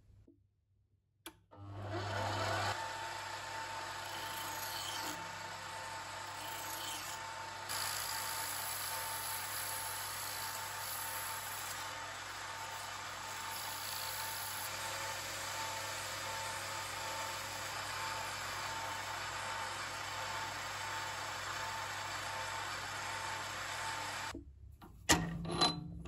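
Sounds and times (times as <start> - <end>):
lathe motor hum and whine: 1.7 - 24.3
hand file rasping metal: 4.0 - 5.2, 6.3 - 11.9.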